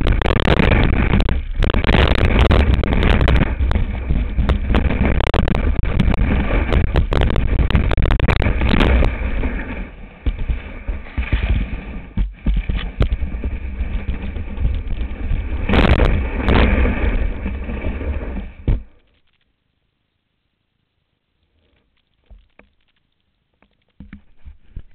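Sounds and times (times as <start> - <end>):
wind buffeting microphone: 0.0 - 18.8
knocks and scrapes of ski: 0.0 - 19.4, 23.6 - 24.9.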